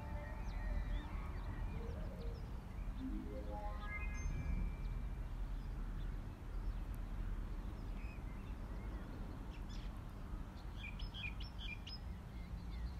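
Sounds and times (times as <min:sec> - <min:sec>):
birds chirping: 0:00.0 - 0:09.9.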